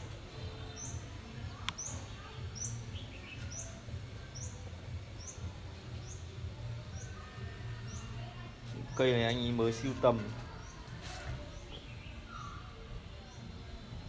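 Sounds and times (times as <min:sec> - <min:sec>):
steady low hum: 0:00.0 - 0:14.0
small bird chirping: 0:00.6 - 0:07.2.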